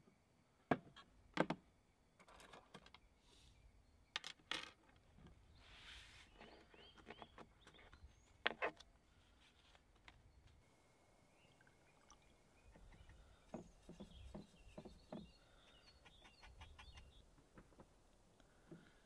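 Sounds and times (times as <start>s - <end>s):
faint bird chirps: 10.2s - 17.3s.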